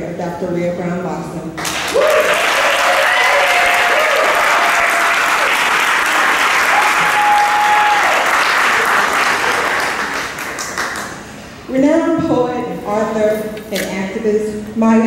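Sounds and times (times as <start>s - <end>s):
audience applauding: 1.6s - 11.3s.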